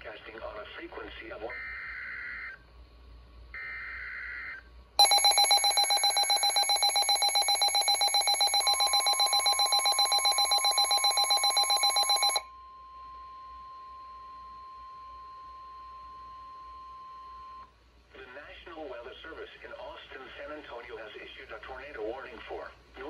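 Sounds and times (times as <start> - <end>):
rapidly pulsing alarm beep: 5.0 - 12.4
steady warning alarm tone: 5.0 - 12.4.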